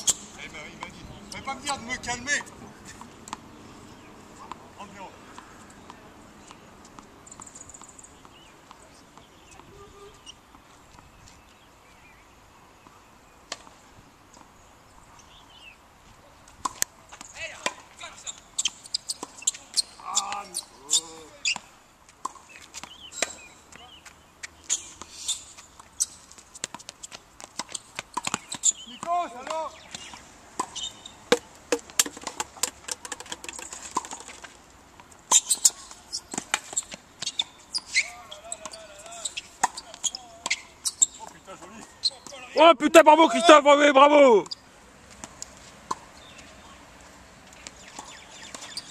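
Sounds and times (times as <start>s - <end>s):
shoes squeaking on court: 0.0s - 11.6s, 16.4s - 42.7s, 44.4s - 48.9s
tennis ball bouncing: 2.4s - 3.6s, 16.6s - 17.8s, 22.2s - 23.5s, 25.8s - 37.9s, 38.6s - 42.5s, 44.4s - 46.2s, 47.4s - 48.9s
bird chirps: 27.8s - 29.1s, 29.7s - 31.4s, 35.3s - 42.6s, 47.6s - 48.9s
tennis ball knock: 29.0s - 34.4s.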